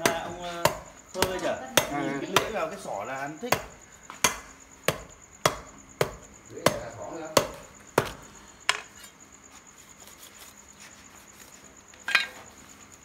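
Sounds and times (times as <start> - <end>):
cleaver chopping: 0.0 - 2.7, 3.5 - 8.9.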